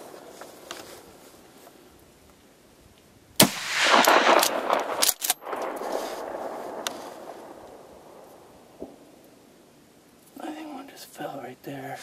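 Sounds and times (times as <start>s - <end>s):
gunshot with long echo: 3.4s - 9.1s.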